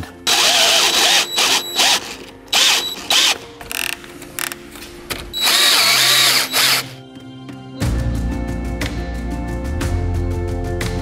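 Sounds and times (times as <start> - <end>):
cordless drill driving bolts: 0.3 - 4.6, 5.3 - 7.0.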